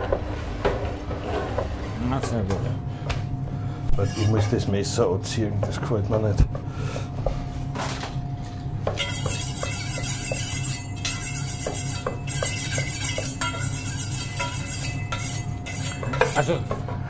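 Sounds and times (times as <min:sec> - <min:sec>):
knife scraping on honing steel: 0:04.0 - 0:04.7, 0:09.0 - 0:16.6.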